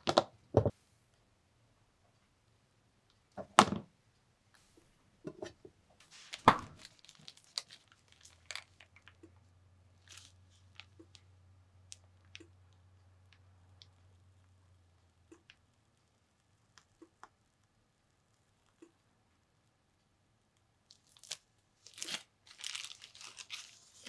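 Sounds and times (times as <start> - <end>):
faint low hum: 0.4 - 24.0
plastic piping bag crinkling: 6.0 - 9.2, 10.0 - 11.3, 20.9 - 24.0.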